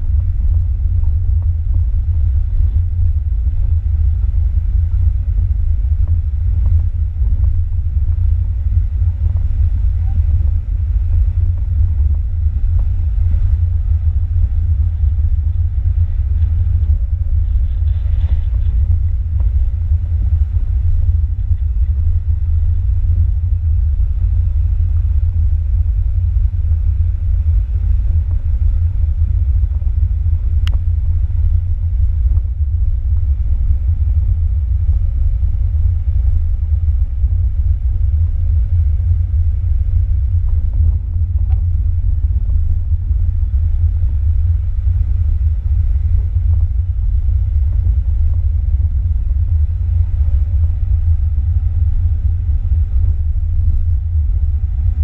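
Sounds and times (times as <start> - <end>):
car engine and tyres rumbling: 0.0 - 55.0
sharp tick: 30.6 - 30.8.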